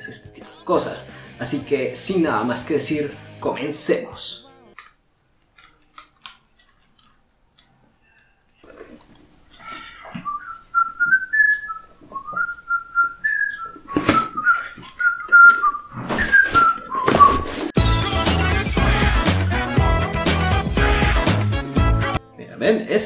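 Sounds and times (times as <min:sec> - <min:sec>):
person whistling a cheerful tune: 0:00.0 - 0:00.3, 0:10.2 - 0:17.4.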